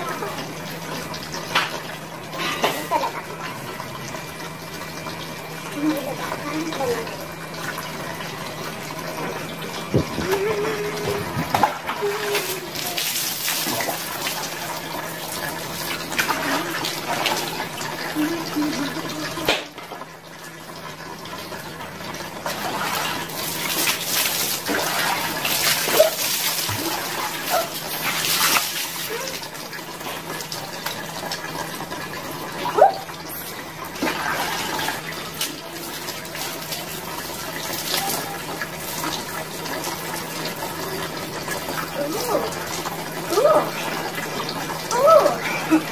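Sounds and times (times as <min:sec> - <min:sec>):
water splashing: 0:09.8 - 0:20.0, 0:22.4 - 0:29.6, 0:32.6 - 0:45.9.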